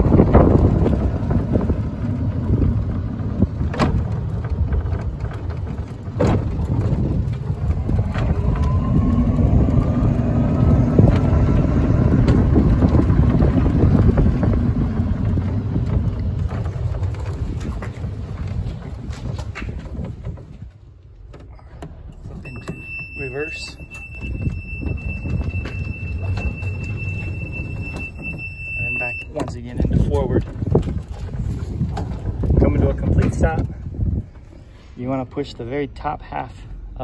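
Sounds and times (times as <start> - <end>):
wind on microphone: 0.0 - 21.0, 22.4 - 35.0
rumble of tyres: 0.0 - 37.0
faint rising whine: 7.6 - 16.7.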